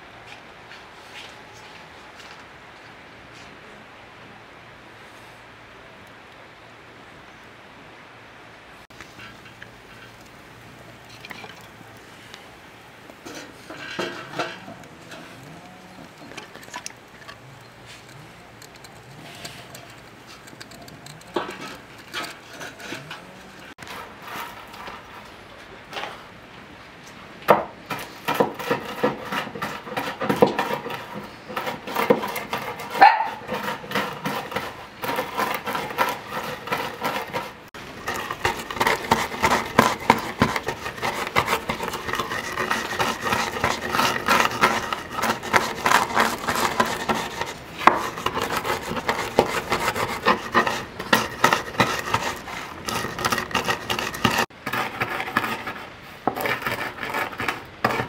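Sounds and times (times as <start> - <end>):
stone crushing nuts on wood: 27.5 - 58.0.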